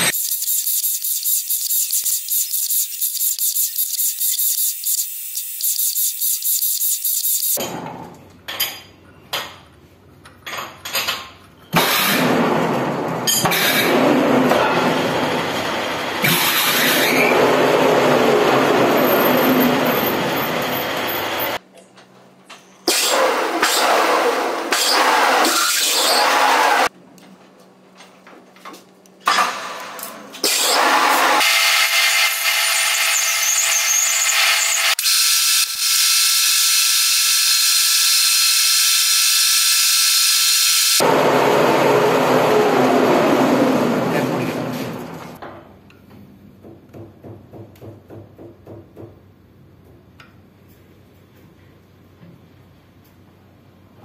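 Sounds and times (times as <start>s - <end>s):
metal lathe running and cutting: 30.5s - 35.1s
lathe chuck whine: 30.5s - 45.4s.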